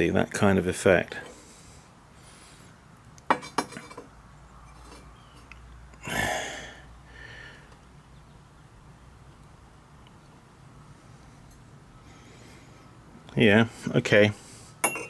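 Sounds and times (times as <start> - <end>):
ceramic pots clinking: 3.3 - 4.1, 4.7 - 5.5, 14.8 - 15.0
pottery scraping on kiln shelf: 4.7 - 5.2.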